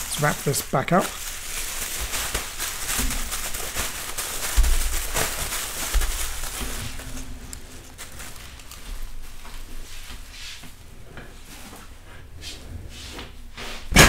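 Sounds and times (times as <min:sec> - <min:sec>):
bubble wrap crinkling: 0:00.0 - 0:10.4.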